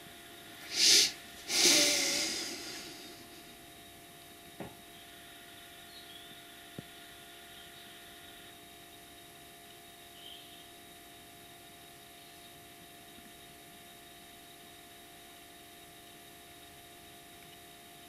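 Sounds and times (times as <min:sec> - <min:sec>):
person breathing: 0:00.6 - 0:03.5.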